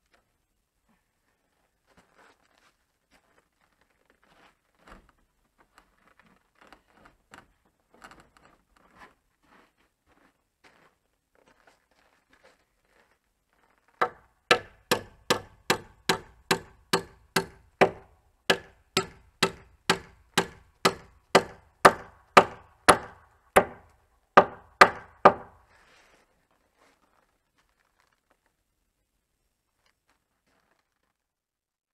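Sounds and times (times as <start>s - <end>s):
hammer striking wood: 14.0s - 25.6s.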